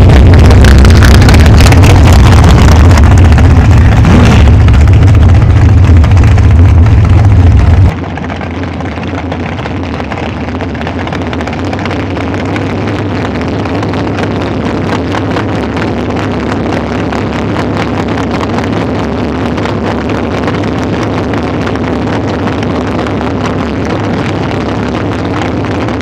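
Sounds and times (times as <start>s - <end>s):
dragster engine revving: 0.0s - 26.0s.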